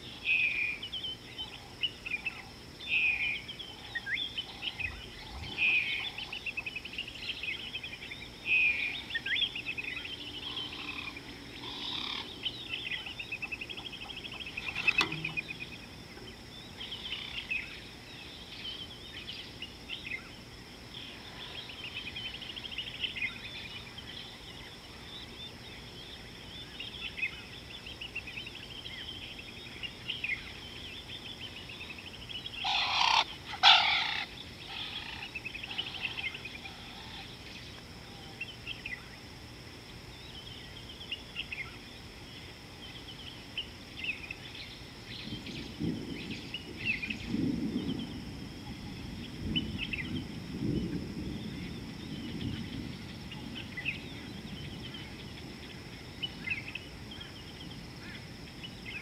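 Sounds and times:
birds chirping and calling: 0:00.0 - 0:20.4, 0:21.0 - 0:39.2.

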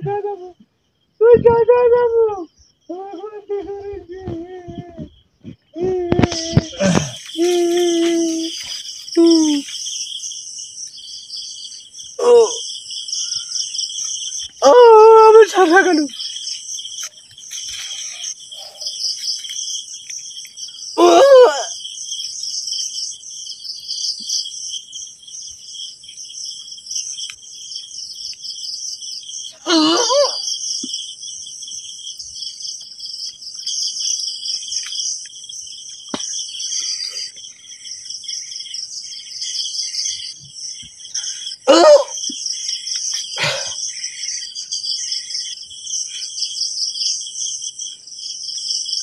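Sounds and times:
crickets chirring: 0:00.0 - 0:49.0
person crying out: 0:05.8 - 0:08.6, 0:12.2 - 0:12.6, 0:21.0 - 0:21.7, 0:29.6 - 0:30.4, 0:41.7 - 0:42.2.

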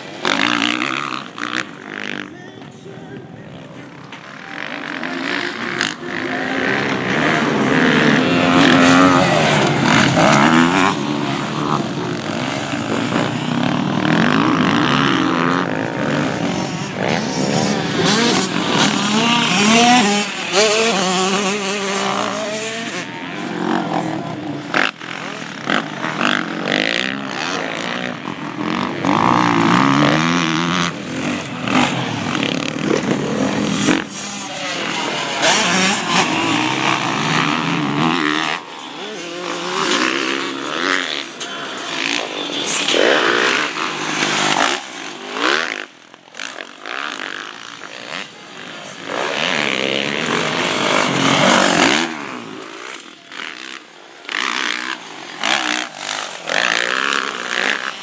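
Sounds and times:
dirt bike engines revving: 0:00.0 - 0:58.0.

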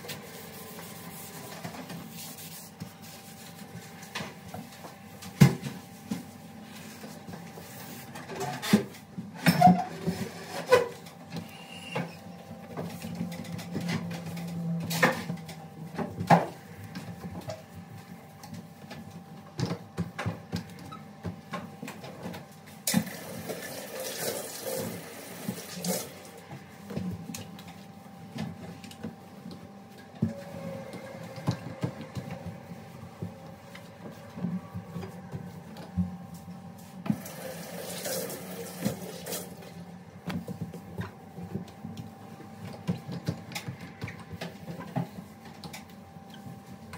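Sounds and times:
sponge wiping glass hob: 0:00.0 - 0:04.1, 0:05.9 - 0:08.7.

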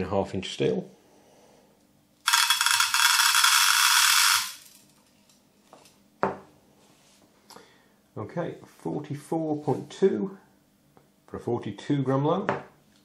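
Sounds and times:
metal pellets rattling into tin: 0:02.2 - 0:05.1.

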